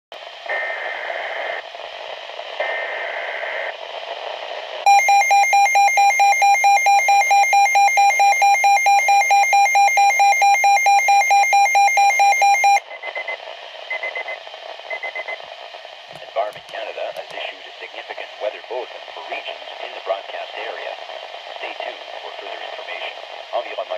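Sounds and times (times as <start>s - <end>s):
electronic alarm beeping rapidly: 4.9s - 13.3s.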